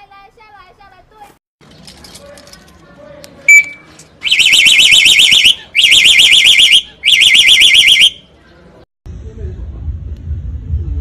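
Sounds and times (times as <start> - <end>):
starling mimicking car alarm: 3.5 - 8.3.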